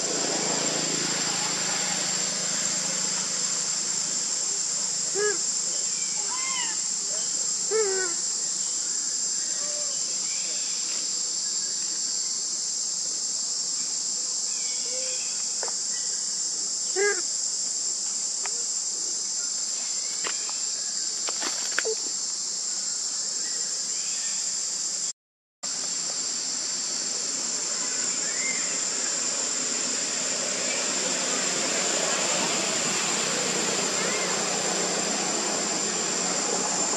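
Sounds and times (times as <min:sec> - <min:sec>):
insects droning: 0:00.0 - 0:36.9.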